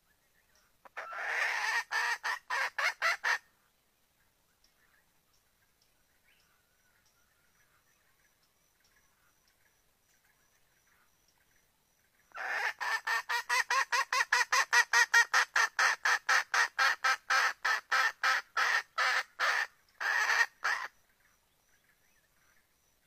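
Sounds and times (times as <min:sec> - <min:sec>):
junglefowl hen calling: 0:00.8 - 0:03.5, 0:12.3 - 0:21.0.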